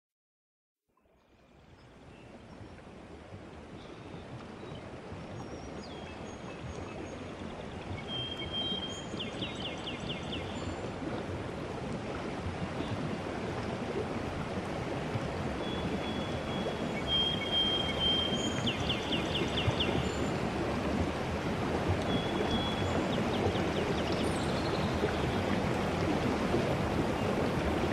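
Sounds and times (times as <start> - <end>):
stream rushing: 7.1 - 27.9
bird whistle and trill: 17.1 - 20.0.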